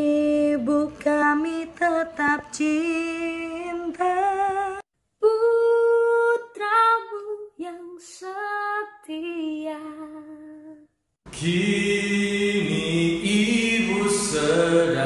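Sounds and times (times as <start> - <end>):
woman singing unaccompanied: 0.0 - 10.8.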